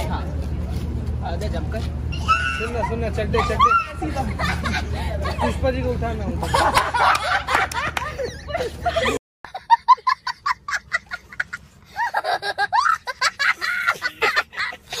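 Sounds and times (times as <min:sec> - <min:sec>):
excited shouting and laughter: 0:02.2 - 0:09.2
young child laughing: 0:06.4 - 0:15.0.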